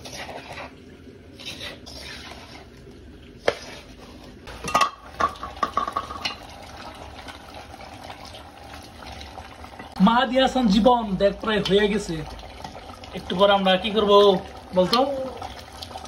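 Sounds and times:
clattering pots and utensils: 0:03.4 - 0:06.9.

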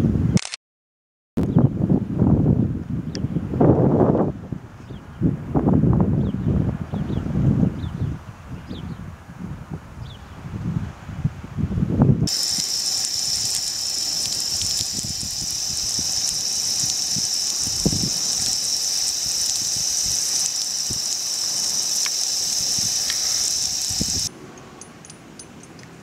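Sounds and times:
shower water spraying: 0:12.3 - 0:24.3.

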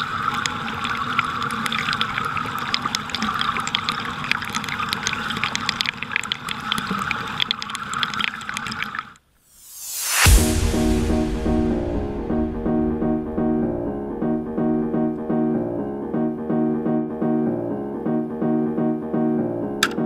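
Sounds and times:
stream water splashing over rocks: 0:00.0 - 0:09.2.

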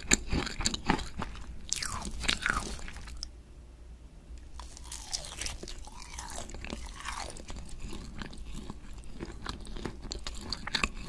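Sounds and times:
chewing crispy fried chicken: 0:00.0 - 0:03.3, 0:04.6 - 0:11.0.

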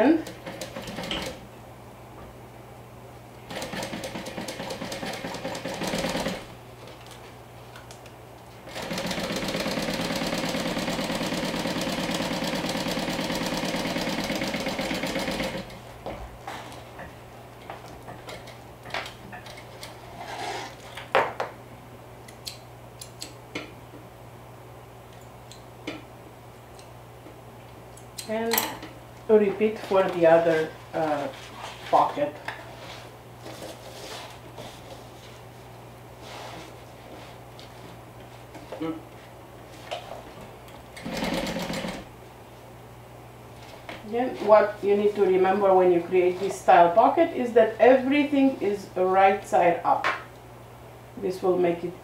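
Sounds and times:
sewing machine stitching: 0:08.7 - 0:15.7, 0:41.0 - 0:42.0.

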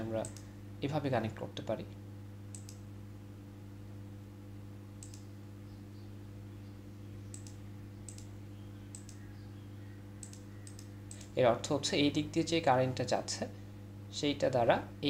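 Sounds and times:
low electrical hum: 0:00.0 - 0:15.0
computer mouse clicking: 0:02.5 - 0:02.8, 0:05.0 - 0:05.3, 0:07.3 - 0:08.3, 0:08.9 - 0:09.3, 0:10.2 - 0:11.3.

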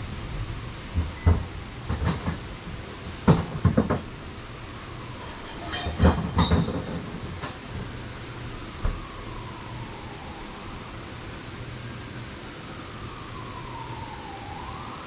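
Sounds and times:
knocks and clunks: 0:01.0 - 0:02.5, 0:03.1 - 0:04.1, 0:05.2 - 0:08.0.

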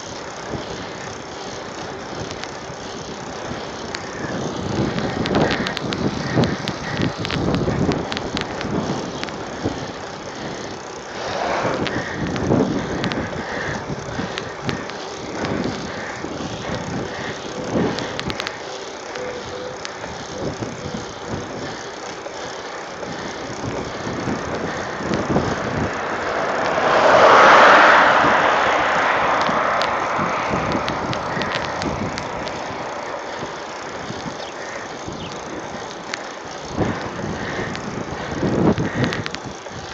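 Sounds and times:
bike clicks and rattles: 0:00.0 - 0:39.9
wind and tyre noise: 0:00.0 - 0:39.9
car passing: 0:08.8 - 0:18.7, 0:21.8 - 0:38.4.

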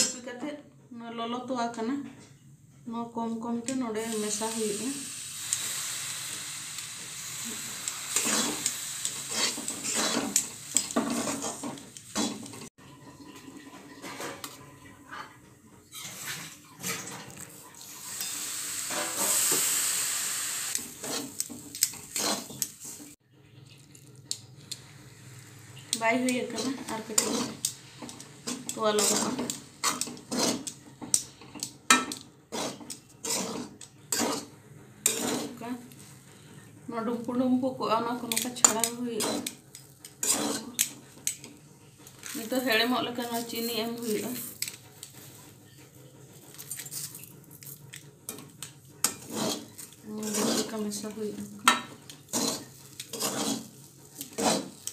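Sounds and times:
sizzling hiss: 0:03.9 - 0:12.6, 0:17.5 - 0:23.2
spatula scraping frying pan: 0:04.0 - 0:12.7, 0:17.8 - 0:23.2, 0:25.2 - 0:36.6, 0:38.2 - 0:45.6, 0:48.3 - 0:54.9.

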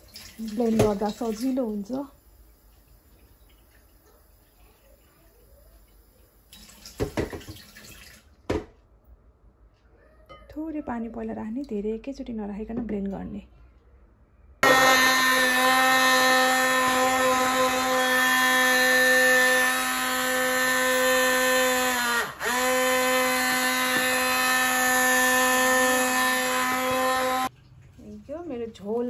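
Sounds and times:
stick blender motor whine: 0:14.6 - 0:27.5.

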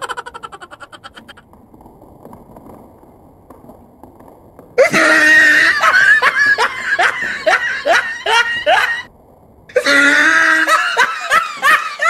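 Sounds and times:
young people laughing hard: 0:00.0 - 0:01.4, 0:04.8 - 0:09.1, 0:09.7 - 0:12.0.

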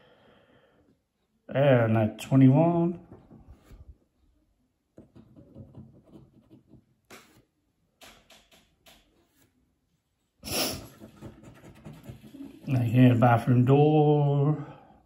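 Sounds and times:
coin scratching a scratch card: 0:10.5 - 0:12.7.

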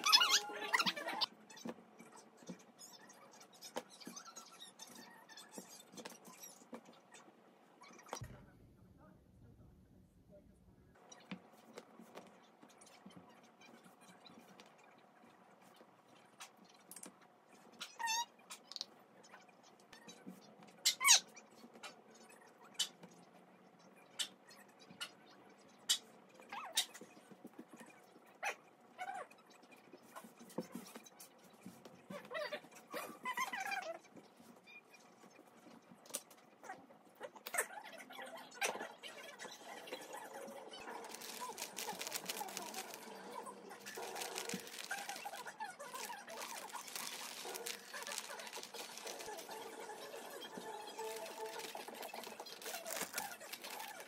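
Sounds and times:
plastic bag crinkling: 0:40.9 - 0:54.0.

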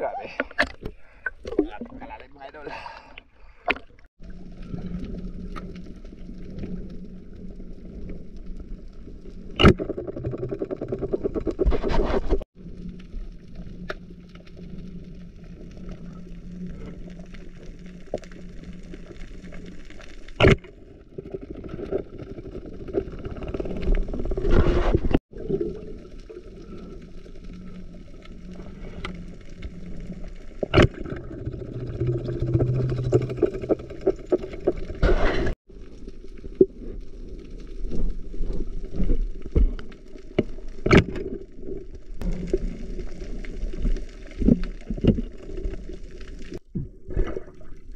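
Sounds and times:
underwater water rush: 0:12.6 - 0:47.9.

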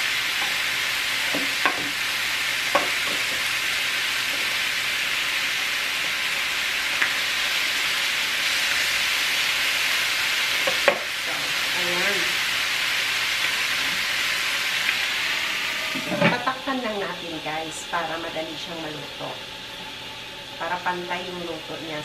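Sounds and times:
chicken sizzling on a grill: 0:00.0 - 0:22.0.

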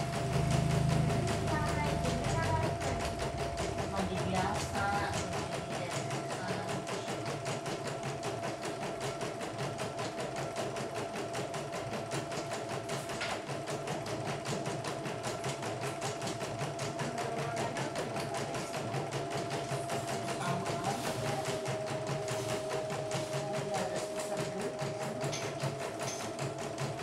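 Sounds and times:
steady motor whine: 0:00.0 - 0:05.1
embroidery machine needle patter: 0:00.0 - 0:27.0.

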